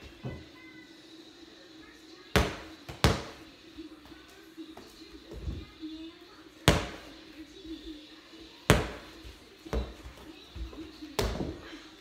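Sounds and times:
basketball bouncing on hard floor: 2.4 - 3.4, 6.7 - 7.0, 8.7 - 9.1, 9.7 - 11.6.

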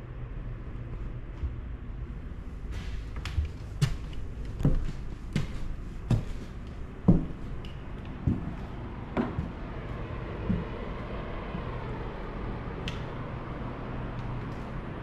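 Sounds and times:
footsteps on wooden stairs: 2.6 - 11.8
floorboards creaking: 2.8 - 10.9.

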